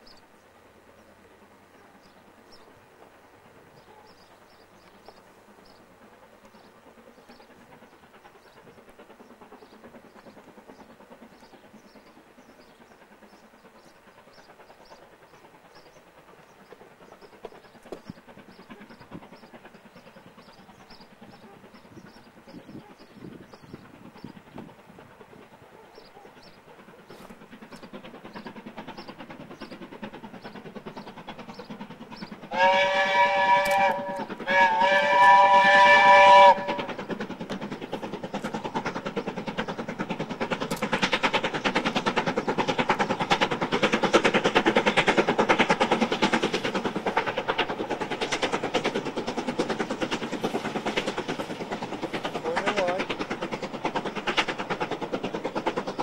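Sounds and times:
steam locomotive exhaust beats: 0.0 - 56.0
steam locomotive whistle blasts: 32.5 - 36.9.

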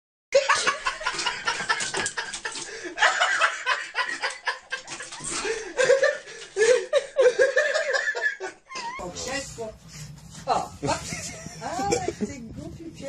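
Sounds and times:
people laughing: 0.4 - 9.0, 10.8 - 12.4.

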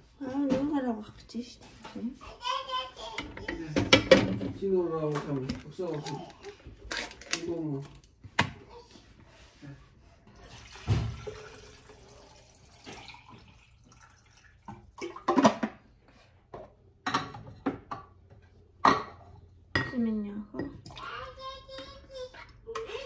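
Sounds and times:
containers clicking and knocking: 3.2 - 8.6, 14.7 - 15.8
water pouring into glass carafe: 10.4 - 15.4.

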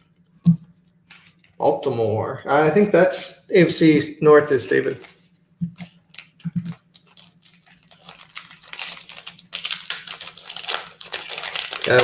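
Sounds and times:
foil wrapper crinkling: 5.8 - 12.0.

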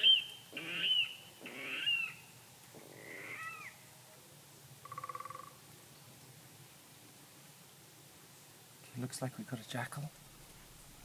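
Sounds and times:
high animal calls: 0.0 - 2.2, 2.8 - 3.8.

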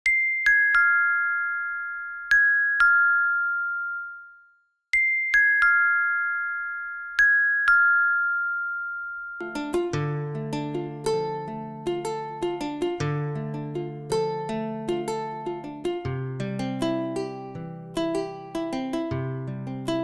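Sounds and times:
bell-like chime notes: 0.1 - 10.0
plucked-string tune: 9.4 - 20.0.

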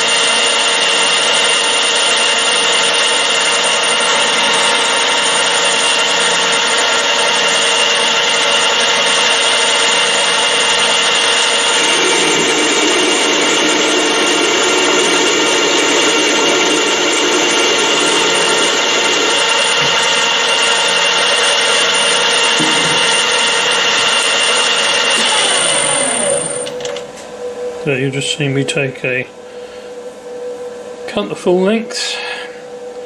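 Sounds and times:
metal lathe whining: 0.0 - 28.7.

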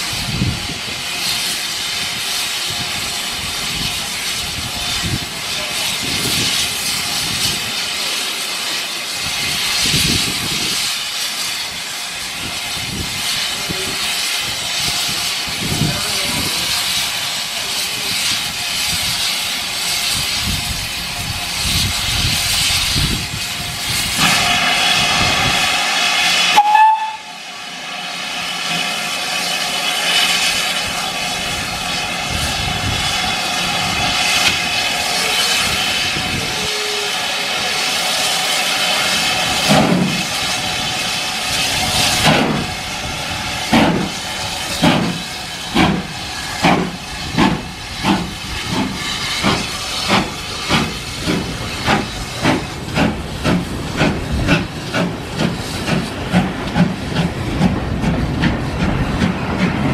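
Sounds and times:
steam hissing: 0.0 - 59.9
steam locomotive whistle: 24.2 - 27.5, 35.2 - 37.9.

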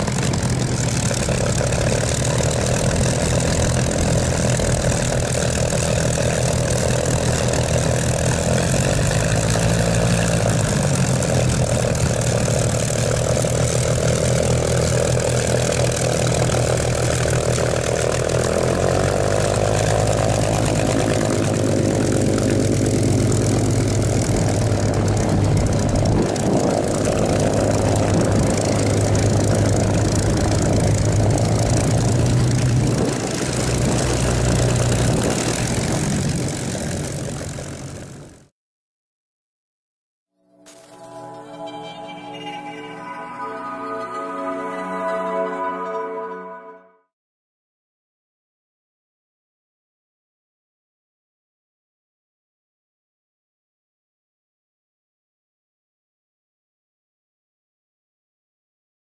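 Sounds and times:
propeller plane engine running: 0.0 - 38.5.

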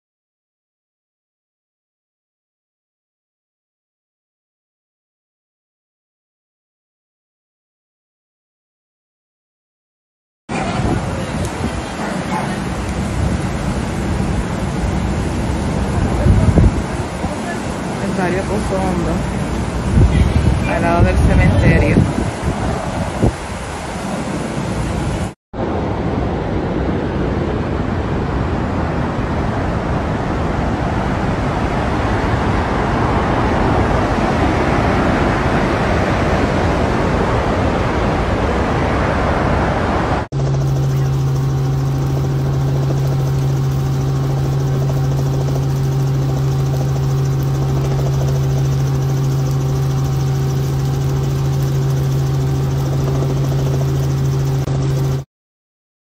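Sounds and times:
aircraft engine drone: 10.5 - 38.8, 39.4 - 55.3.

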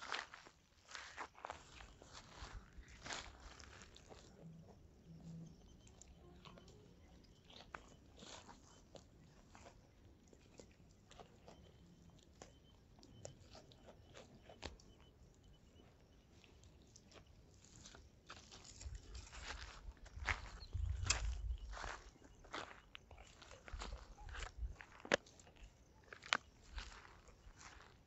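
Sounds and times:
crunches and snaps in dry vegetation: 18.0 - 22.8.

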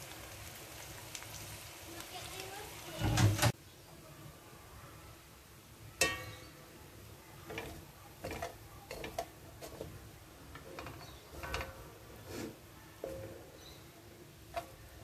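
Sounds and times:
spatula scraping metal pan: 7.4 - 15.0.

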